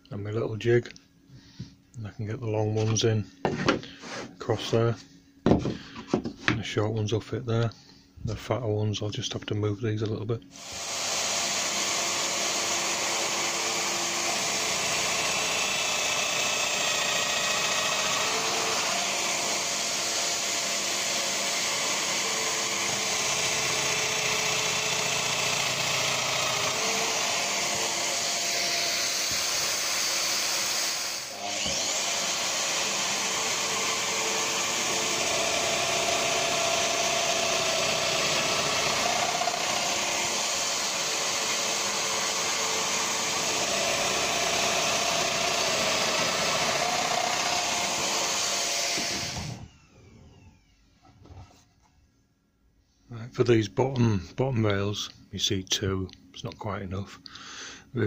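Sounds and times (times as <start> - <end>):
power tool whirring: 10.5 - 50.9
dust extractor running: 10.6 - 50.5.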